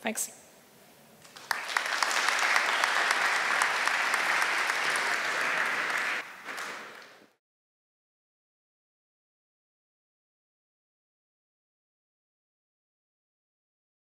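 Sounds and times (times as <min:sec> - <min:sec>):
audience applauding: 0:01.2 - 0:07.4.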